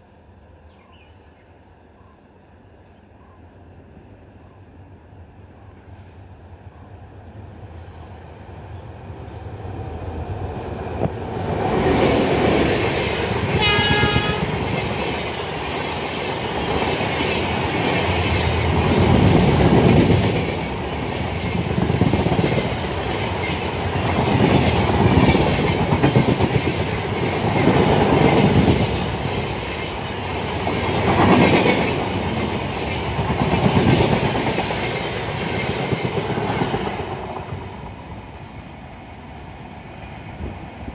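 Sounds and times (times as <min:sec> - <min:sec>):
train wheels rumbling and clattering: 0:08.6 - 0:40.9
train horn blast: 0:13.5 - 0:14.7.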